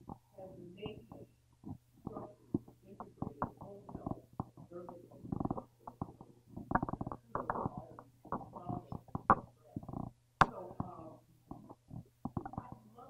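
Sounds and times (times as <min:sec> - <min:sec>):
steady low hum: 0:00.0 - 0:13.0
person talking off-microphone: 0:00.4 - 0:01.3, 0:02.1 - 0:11.8.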